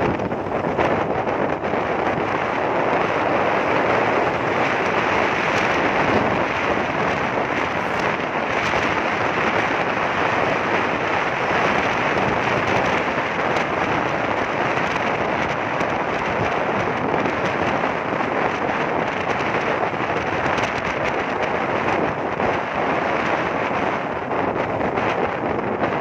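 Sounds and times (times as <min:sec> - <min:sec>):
wind rushing over microphone: 0:00.0 - 0:26.0.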